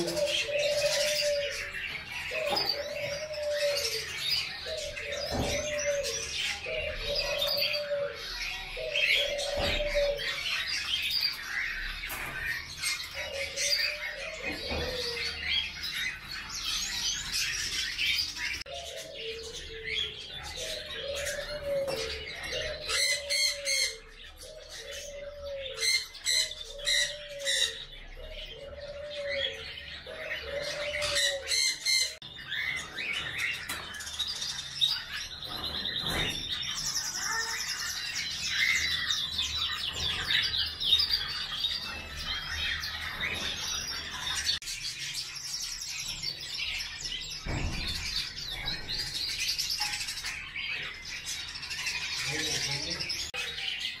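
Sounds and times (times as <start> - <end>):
parakeet chirping and chattering: 29.5 - 54.0.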